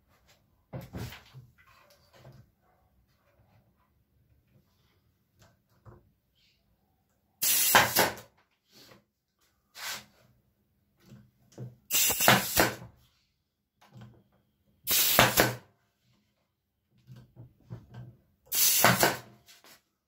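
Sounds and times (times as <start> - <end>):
nail gun firing: 7.4 - 8.3, 11.9 - 12.8, 14.9 - 15.7, 18.5 - 19.4.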